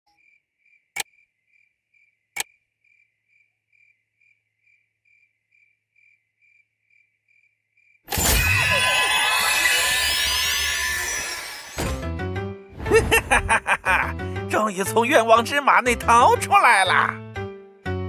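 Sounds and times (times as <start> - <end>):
crickets chirping: 0.1 - 10.8
sharp clicks: 0.9 - 1.2
shimmering sound effect: 8.1 - 11.8.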